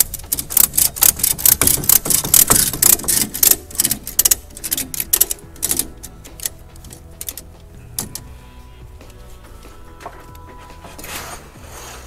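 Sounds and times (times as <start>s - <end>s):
ratchet strap clicking: 0.0s - 8.2s.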